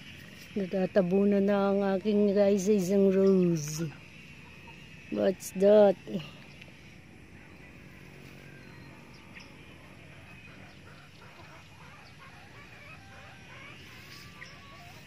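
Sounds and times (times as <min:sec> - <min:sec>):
faint farmyard ambience: 0:00.0 - 0:15.0
distant fowl calling: 0:04.0 - 0:05.7, 0:07.3 - 0:15.0.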